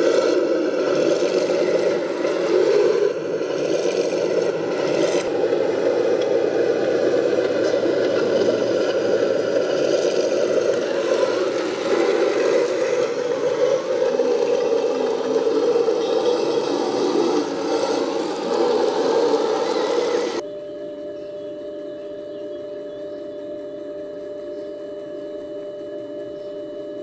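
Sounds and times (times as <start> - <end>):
model tank gears whirring: 0.0 - 20.4
tracks rattling and scraping: 0.0 - 20.4.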